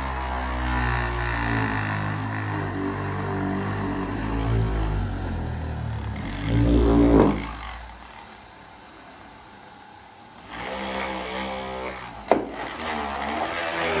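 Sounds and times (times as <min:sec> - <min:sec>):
drill motor whining: 0:00.0 - 0:14.0
sharp knock: 0:12.3 - 0:12.6.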